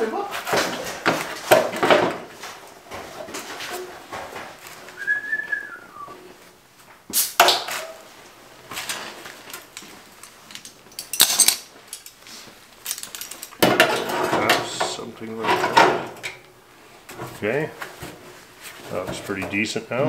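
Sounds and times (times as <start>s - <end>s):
short high whistle: 5.0s - 6.2s.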